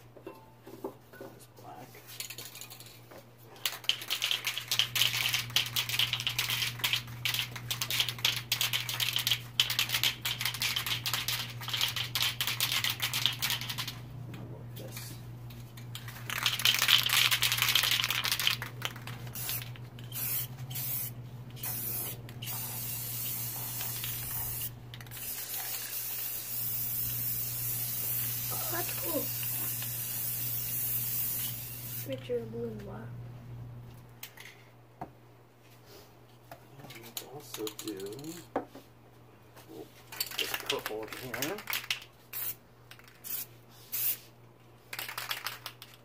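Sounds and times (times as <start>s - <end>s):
aerosol spray can hissing: 19.3s - 32.1s, 43.2s - 44.3s.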